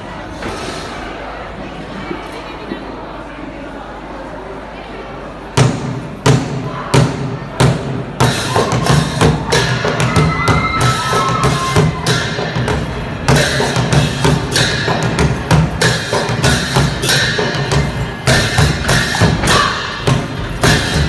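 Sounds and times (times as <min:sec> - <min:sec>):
heavy drum strokes: 0:06.3 - 0:21.0
cymbals: 0:07.2 - 0:21.0.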